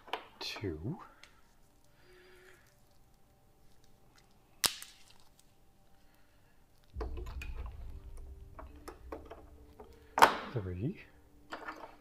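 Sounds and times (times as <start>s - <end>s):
low rumbling handling noise: 7.0s - 12.0s.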